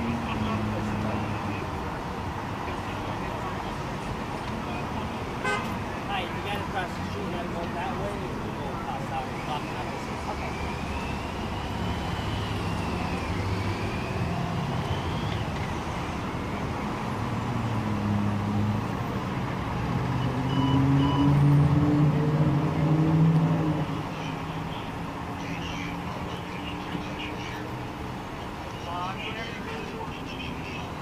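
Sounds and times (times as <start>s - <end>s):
cars and trucks driving past: 0.0s - 31.0s
vehicle engine pulling away: 19.7s - 24.0s.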